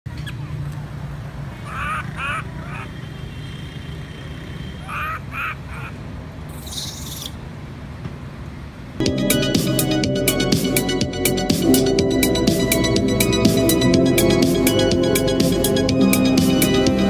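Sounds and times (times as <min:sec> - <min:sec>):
young monkey crying: 0:01.5 - 0:03.1, 0:04.7 - 0:06.1.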